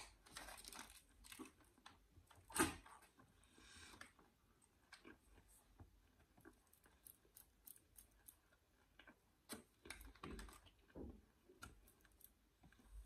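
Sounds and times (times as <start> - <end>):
paper wrapper crinkling: 0.0 - 1.9
chewing with wet mouth clicks: 6.2 - 9.2.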